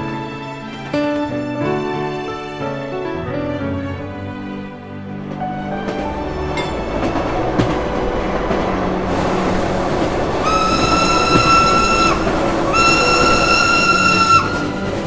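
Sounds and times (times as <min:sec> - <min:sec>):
running train rushing noise: 0:00.0 - 0:15.0
train whistle blasts: 0:10.4 - 0:15.0.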